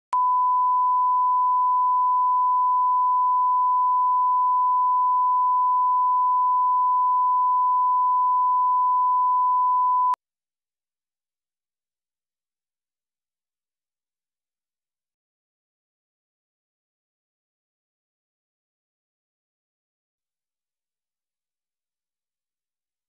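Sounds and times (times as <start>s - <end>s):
pure test tone: 0.2s - 10.2s.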